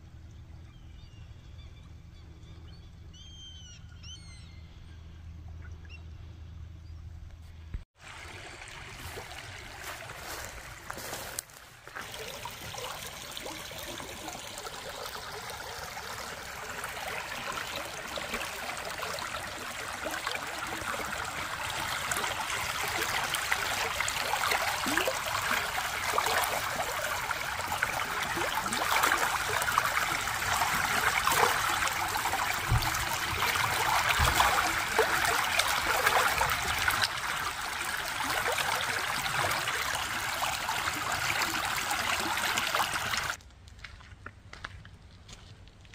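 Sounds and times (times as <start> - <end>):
water spilling over a log: 8.0 - 43.4.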